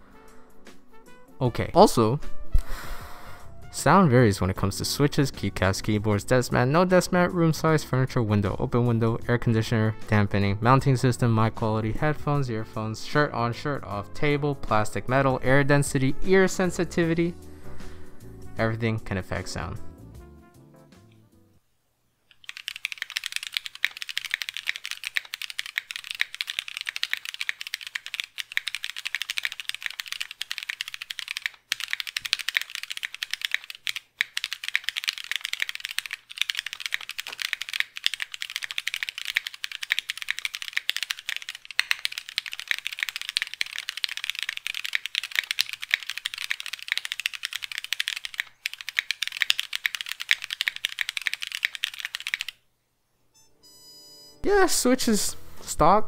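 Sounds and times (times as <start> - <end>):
fast typing on mechanical keyboard: 22.3 - 52.6.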